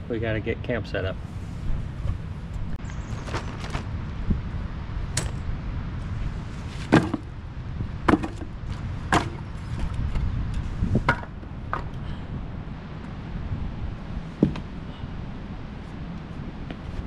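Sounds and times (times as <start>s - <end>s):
firewood clunking onto pile: 6.8s - 7.3s, 8.1s - 10.0s, 11.1s - 11.9s, 14.4s - 14.7s.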